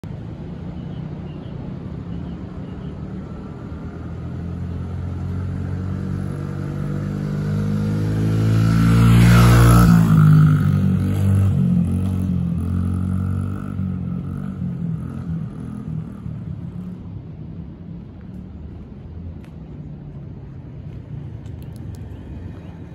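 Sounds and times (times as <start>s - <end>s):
dirt bike engine passing by: 4.4s - 17.0s.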